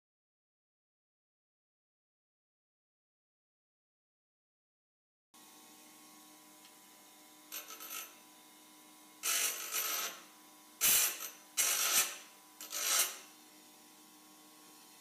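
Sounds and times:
bench grinder humming: 6.2 - 15.0
metal part grinding on wheel: 7.5 - 8.2, 9.2 - 13.3.

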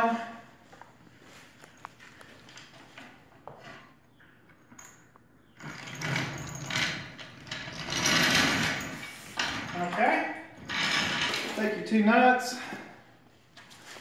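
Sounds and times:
metal equipment scraping and clattering: 5.6 - 11.8.

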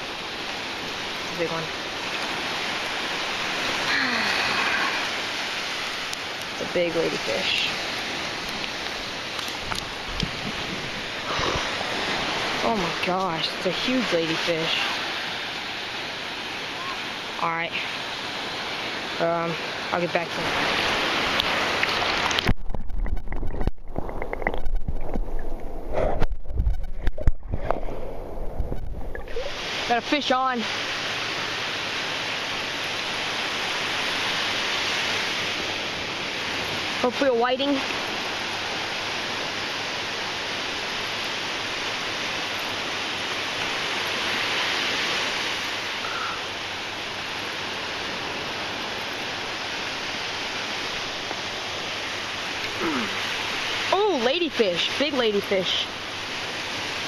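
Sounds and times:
muffled underwater water churn: 0.0 - 53.9
small waves breaking on shore: 0.0 - 57.0.

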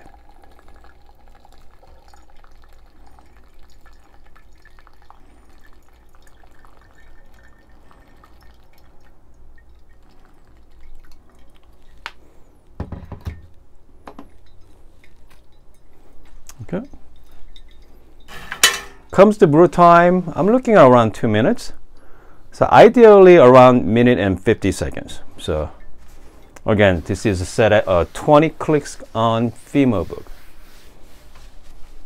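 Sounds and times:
water trickling and dripping: 0.0 - 12.8, 14.2 - 20.5.

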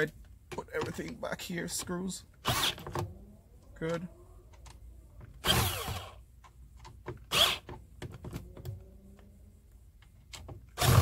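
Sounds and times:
cordless drill driving screws: 2.4 - 2.8, 5.4 - 6.2, 7.3 - 7.7, 10.8 - 11.0.

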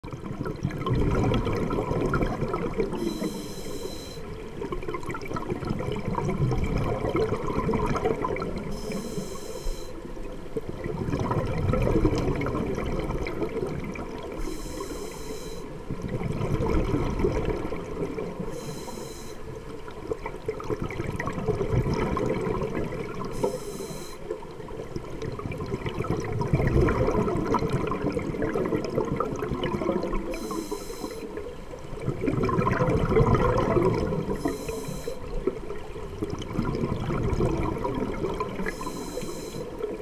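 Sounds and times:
bubbling exhaled air: 0.1 - 10.0, 10.7 - 19.3, 20.4 - 24.1, 24.7 - 31.3, 31.9 - 40.0
regulator hissing inhalations: 8.8 - 10.0, 14.4 - 15.7, 23.4 - 24.2, 34.4 - 35.2.

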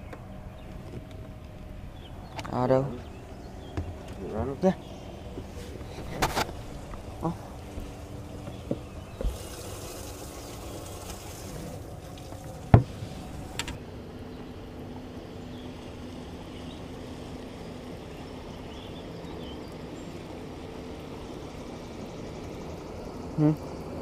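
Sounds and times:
electric boat motor humming: 0.0 - 24.0.

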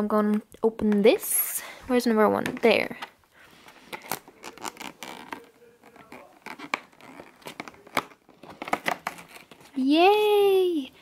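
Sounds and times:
cardboard tearing: 3.8 - 9.8
fingers scratching cardboard: 4.0 - 9.6.

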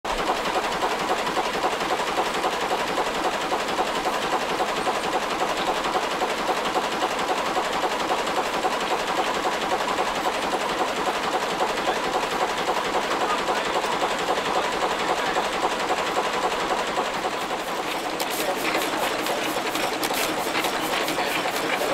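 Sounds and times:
marine engine clattering: 0.1 - 21.9.

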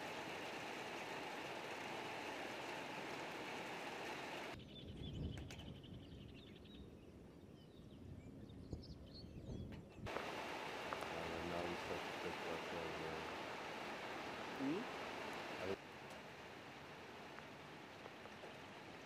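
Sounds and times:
steady hiss: 0.0 - 4.6, 10.1 - 19.0
low wind rumble: 0.0 - 19.0.

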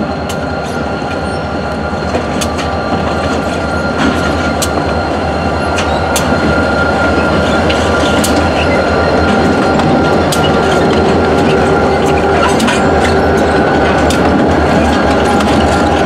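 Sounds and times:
freight train rolling past: 0.0 - 16.0.

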